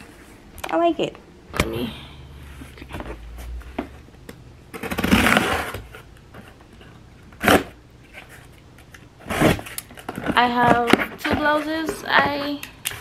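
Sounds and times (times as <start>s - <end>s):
rustling scrape of cardboard: 4.7s - 6.1s, 9.2s - 9.8s.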